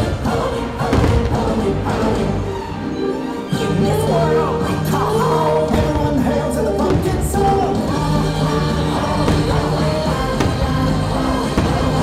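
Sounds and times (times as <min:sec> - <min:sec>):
melodic soundtrack music: 0:00.0 - 0:12.0.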